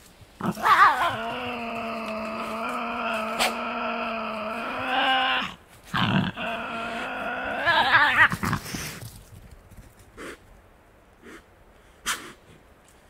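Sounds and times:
animal growling and snarling: 0.4s - 9.0s.

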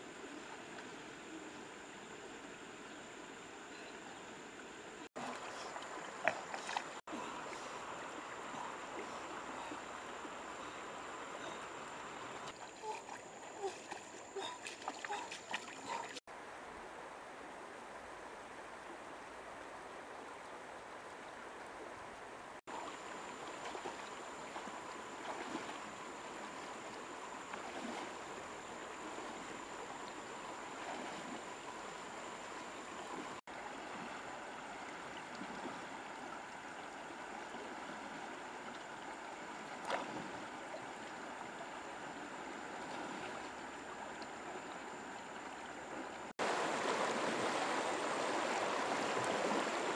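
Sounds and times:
feet splashing through water: 5.2s - 9.9s, 12.2s - 16.3s, 22.7s - 32.0s, 33.0s - 36.3s, 39.6s - 40.8s
river rushing over stones: 46.4s - 49.9s.

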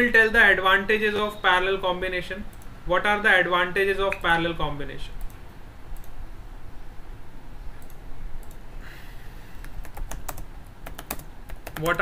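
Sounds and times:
low steady hum: 0.0s - 12.0s
computer keyboard typing: 9.6s - 12.0s.

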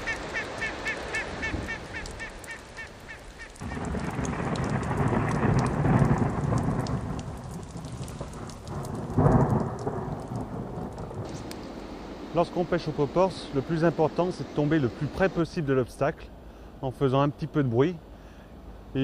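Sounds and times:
rain pattering on water: 0.0s - 16.2s
thunder rumbling: 3.6s - 14.2s.

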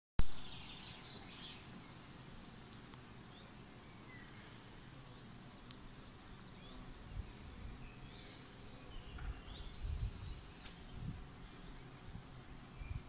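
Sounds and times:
soft hiss: 0.2s - 13.0s
faint bird chirps: 6.3s - 12.1s
low rumbles on microphone: 9.0s - 11.3s.

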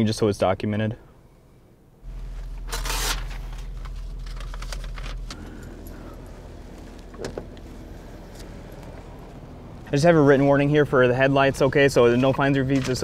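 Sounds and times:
vehicle engine idling: 1.1s - 13.0s.

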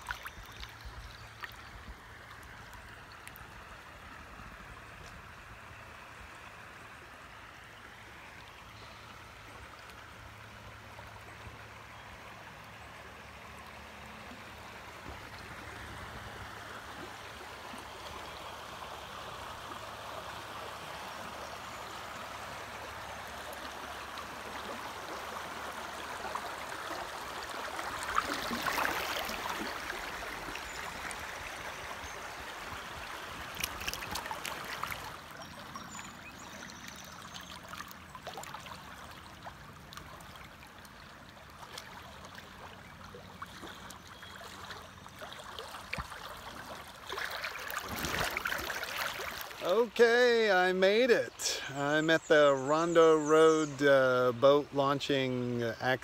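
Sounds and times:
water splashing: 0.0s - 4.2s, 21.7s - 50.0s
river rushing and gurgling: 0.0s - 36.9s, 37.5s - 56.0s.

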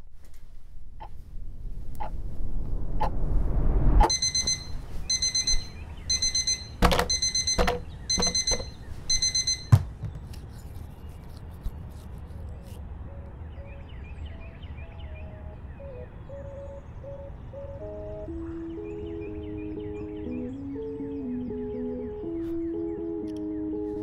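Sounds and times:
low rumbling swell: 0.8s - 5.1s
alarm beeping in bursts: 4.0s - 9.8s
bedding thumps: 6.8s - 8.7s, 9.5s - 10.4s.

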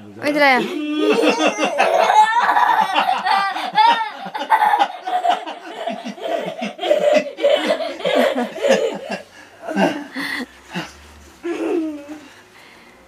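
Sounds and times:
people laughing hard: 0.7s - 10.4s.

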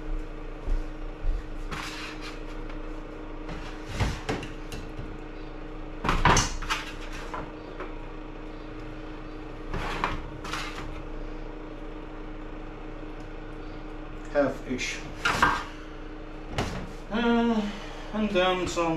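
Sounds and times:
low hum: 0.0s - 18.9s
spatula scraping metal tray: 9.7s - 10.9s.

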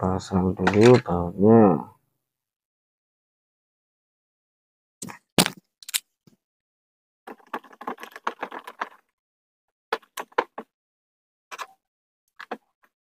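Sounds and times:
small metal parts clicking and rattling: 7.3s - 9.1s.

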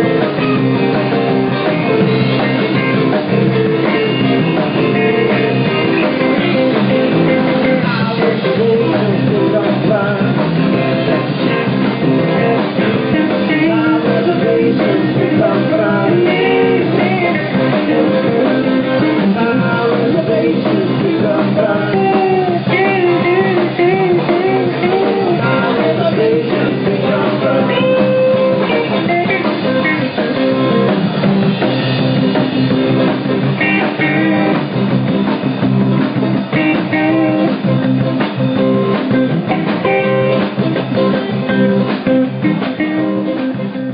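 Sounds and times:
bass guitar: 0.0s - 43.9s
drum kit: 0.0s - 43.9s
electric guitars: 0.0s - 43.9s.

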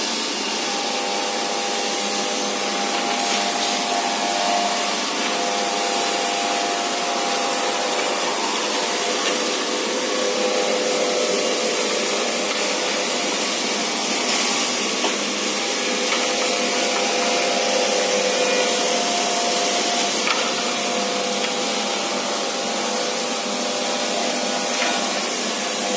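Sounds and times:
dust extraction blowers rushing: 0.0s - 25.9s
woodworking machinery running: 0.0s - 25.9s.

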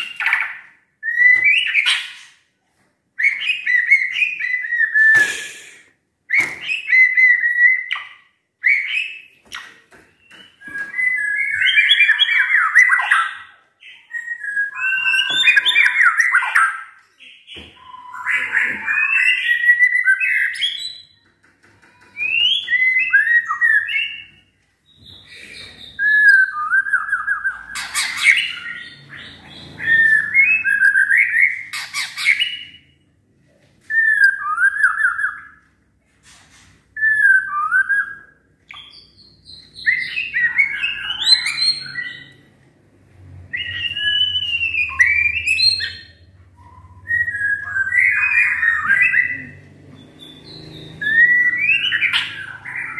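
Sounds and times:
songbird whistling and chattering: 37.0s - 42.4s, 43.5s - 52.9s.

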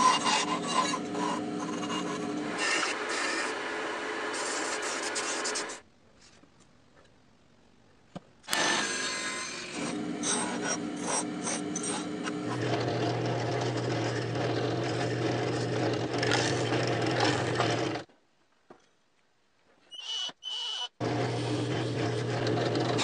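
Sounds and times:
drill press boring into wood: 8.5s - 18.0s, 20.5s - 23.0s
table saw ripping wood: 8.5s - 18.0s, 21.0s - 23.0s.

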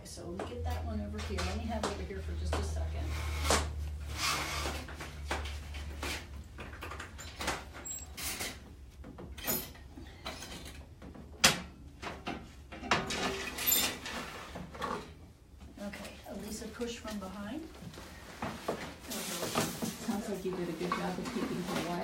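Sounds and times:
metal cage parts clanking: 12.7s - 14.3s.

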